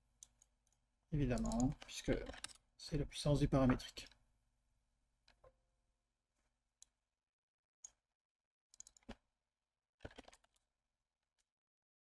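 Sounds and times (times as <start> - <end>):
keyboard and mouse clicks: 0.2 - 2.6, 8.7 - 9.2, 10.0 - 10.7.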